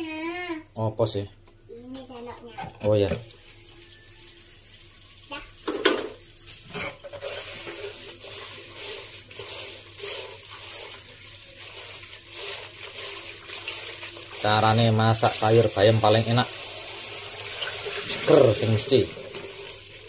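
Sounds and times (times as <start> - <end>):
leaves washed in splashing water: 7.2 - 20.0.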